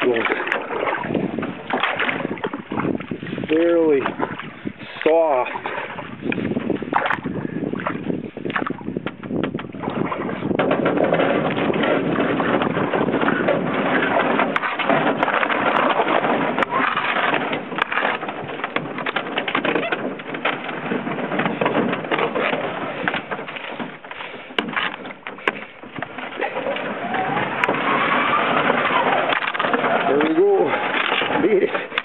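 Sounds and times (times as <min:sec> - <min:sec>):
canoe grinding over ice: 0:00.0 - 0:32.0
ice cracking: 0:14.0 - 0:32.0.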